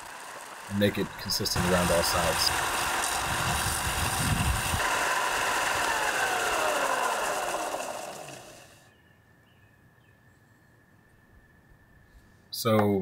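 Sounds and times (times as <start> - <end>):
belt sander motor whine: 0.0 - 8.9.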